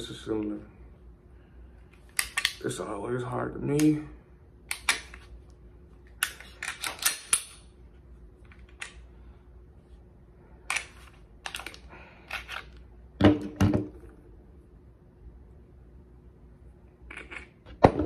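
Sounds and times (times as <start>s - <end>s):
pistol slide clicking and clacking: 2.2s - 2.6s, 4.7s - 5.2s, 6.1s - 7.7s.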